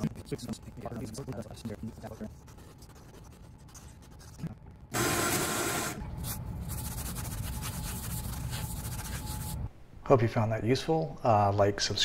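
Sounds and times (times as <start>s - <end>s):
rubber pad rubbing wood surface: 5.0s - 9.6s.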